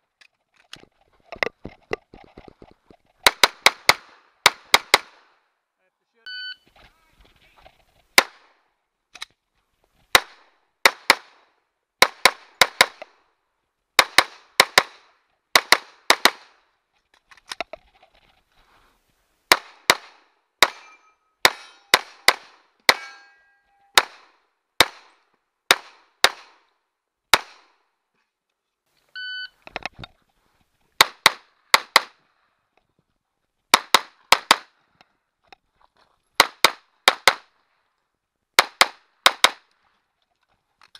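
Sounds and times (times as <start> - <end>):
pistol shots: 3.2 - 5.3, 8.2 - 8.5, 10.1 - 11.4, 19.5 - 23.1, 23.9 - 26.7, 27.3 - 27.8, 36.4 - 37.5
shot timer beep: 6.3 - 6.6.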